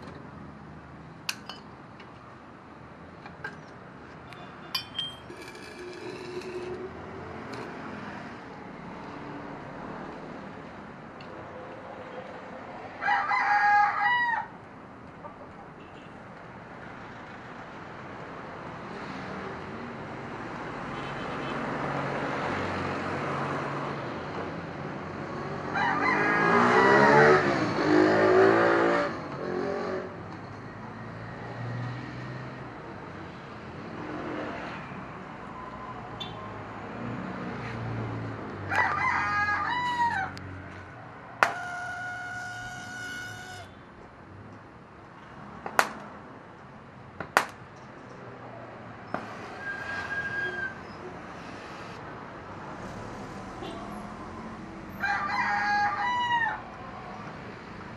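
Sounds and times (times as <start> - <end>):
rooster crowing: 13.0 - 14.6, 25.7 - 27.4, 38.7 - 40.4, 41.4 - 43.7, 54.9 - 57.2.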